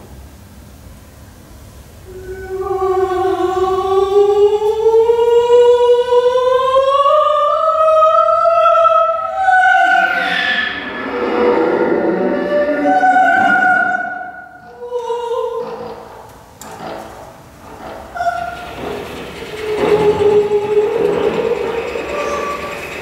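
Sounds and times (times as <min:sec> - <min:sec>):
bowed string instrument: 0:14.6 - 0:23.0.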